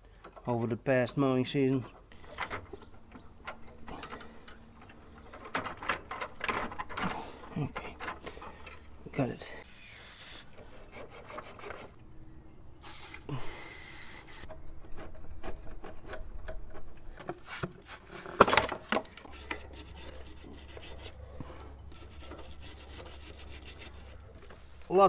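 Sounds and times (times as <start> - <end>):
wire brush scrubbing: 19.3 - 24.3.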